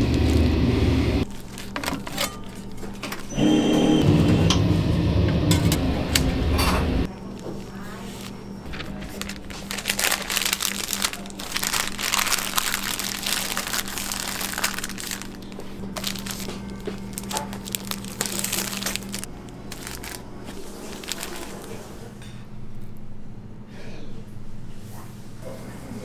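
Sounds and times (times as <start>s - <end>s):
paper wrapper crinkling: 0.0s - 0.6s, 1.2s - 3.3s, 7.3s - 22.0s.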